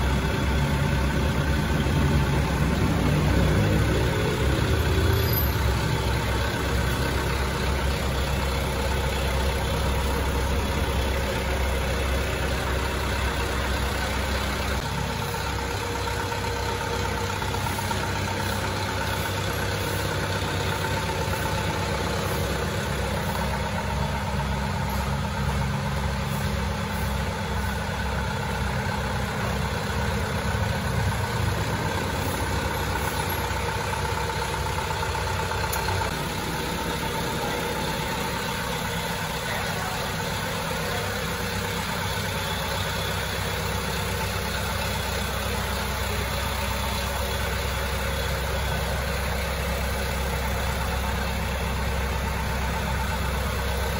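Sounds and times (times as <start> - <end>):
diesel truck engine idling: 0.0 - 53.9.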